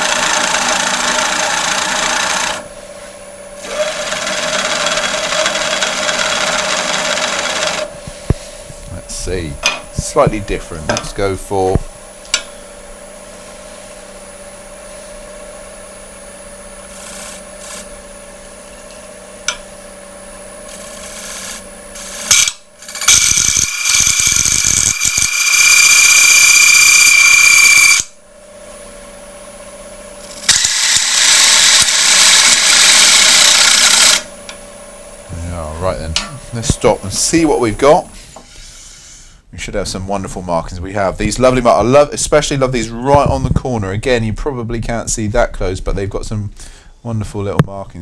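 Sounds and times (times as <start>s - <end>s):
wood lathe running: 0.0s - 2.7s, 3.6s - 8.3s, 16.8s - 17.9s, 20.7s - 28.1s, 30.2s - 34.6s
cutter rasping on wood: 3.6s - 7.9s, 20.7s - 25.7s.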